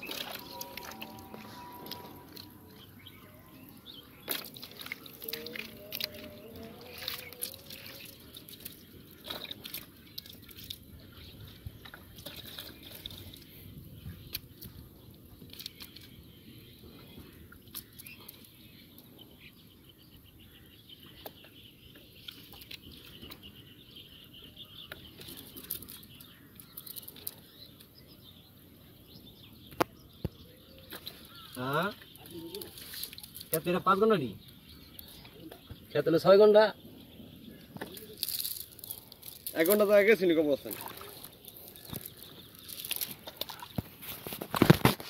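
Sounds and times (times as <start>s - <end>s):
water dripping: 0.0s - 10.8s, 37.8s - 44.2s
mud squelching: 0.0s - 19.0s, 21.1s - 23.8s, 24.6s - 28.0s, 30.7s - 36.0s, 37.4s - 45.0s
fishing net clicks: 4.3s - 10.8s, 37.8s - 40.0s, 40.7s - 45.0s.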